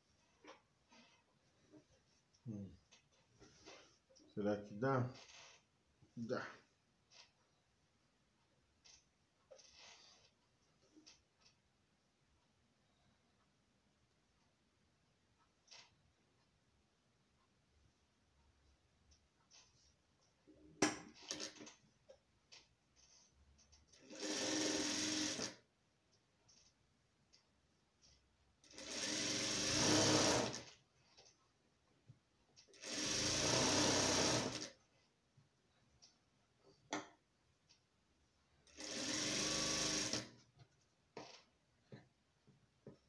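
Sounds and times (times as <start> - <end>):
sewing machine stitching: 21.2 - 21.7, 23.9 - 25.6, 28.6 - 30.8, 32.7 - 34.8, 38.6 - 40.4.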